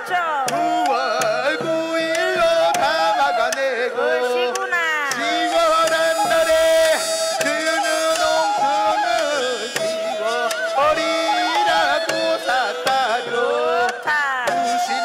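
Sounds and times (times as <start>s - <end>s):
wavering reed or bowed melody: 0.5s - 15.0s
sharp drum strokes: 4.5s - 15.0s.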